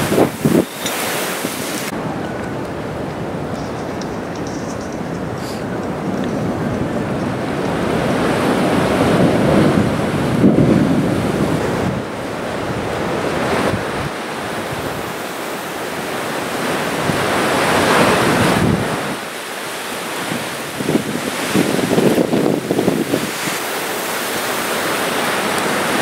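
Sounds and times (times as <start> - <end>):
wind buffeting microphone: 0.0 - 19.3, 20.2 - 26.0
surf breaking: 12.8 - 26.0.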